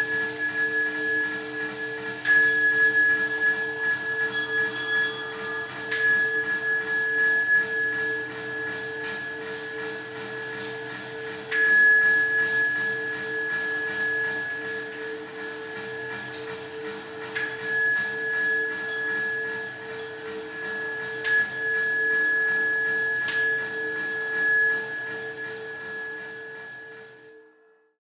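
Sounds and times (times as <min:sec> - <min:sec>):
small high-pitched bell ringing: 0:00.0 - 0:27.8.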